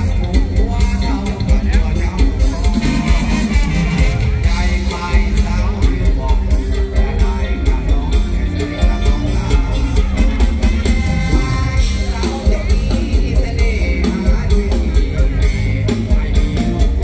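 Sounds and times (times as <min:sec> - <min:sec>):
keyboard: 0:00.0 - 0:17.0
live band through pa: 0:00.0 - 0:17.0
steady drum beat: 0:00.0 - 0:17.0
saxophone: 0:02.6 - 0:05.1.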